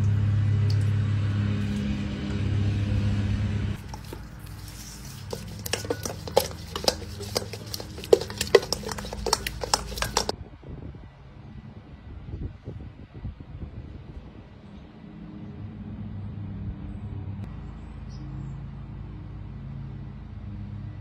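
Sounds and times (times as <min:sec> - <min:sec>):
food clicking against metal bowl: 0:03.8 - 0:10.3.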